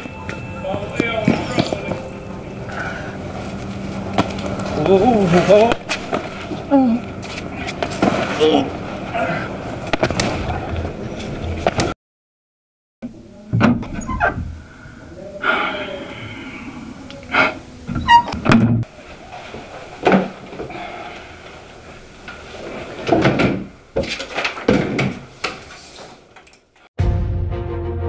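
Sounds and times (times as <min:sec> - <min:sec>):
person moving about a room: 0:00.0 - 0:12.0, 0:17.9 - 0:26.9.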